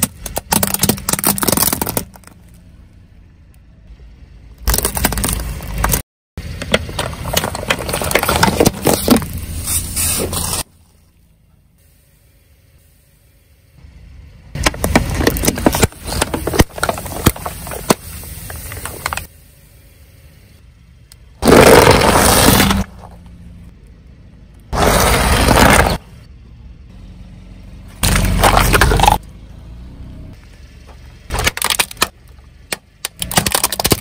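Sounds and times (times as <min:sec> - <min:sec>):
tyre crushing plastic bottles: 0:00.0 - 0:02.4, 0:04.6 - 0:06.0, 0:06.6 - 0:09.4, 0:14.6 - 0:19.2, 0:21.4 - 0:23.1, 0:24.8 - 0:26.0, 0:31.3 - 0:34.0
sharp cracks: 0:31.3 - 0:34.0.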